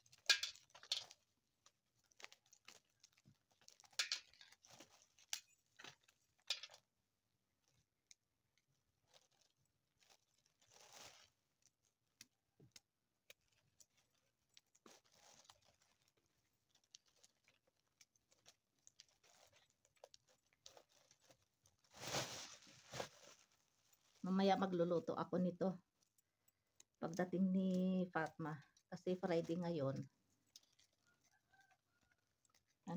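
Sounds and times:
kernels dropping onto tray: 0.3s - 1.1s, 6.5s - 6.8s.

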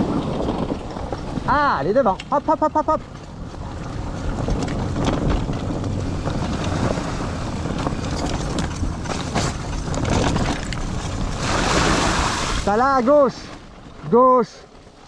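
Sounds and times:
cart rolling on dirt trail: 0.0s - 15.0s
wind buffeting microphone: 0.0s - 15.0s
small rattles and knocks: 0.1s - 11.4s.

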